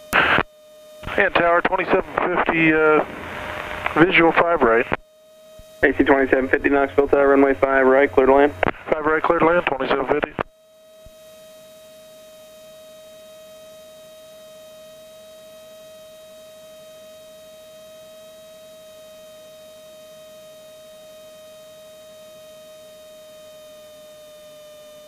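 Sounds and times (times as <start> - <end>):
steady electrical whine: 0.0 - 25.0.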